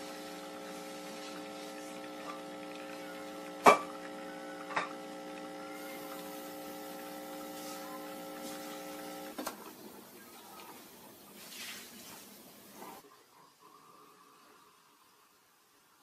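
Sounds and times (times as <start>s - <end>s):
espresso machine pump humming: 0.0s - 9.8s.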